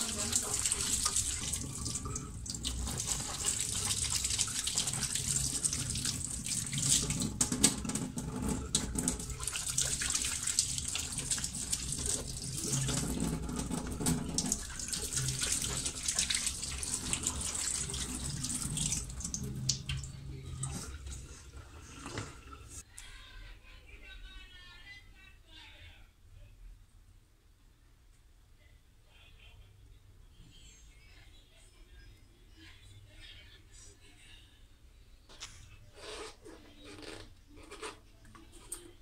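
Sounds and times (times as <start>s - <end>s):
tap water running into sink: 0.0s - 22.8s.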